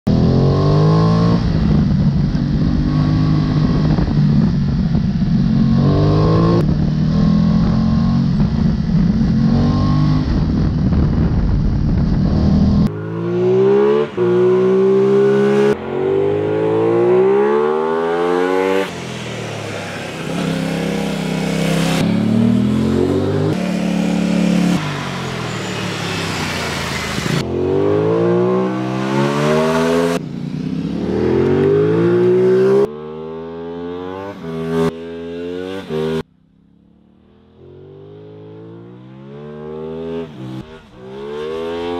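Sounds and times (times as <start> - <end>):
motorcycle engine revving: 0.1 - 41.9
wind rush: 8.2 - 12.9.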